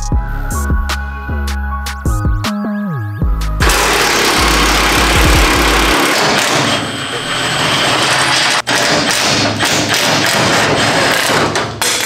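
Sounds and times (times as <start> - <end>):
impact wrench hammering on bolts: 3.6 - 12.0.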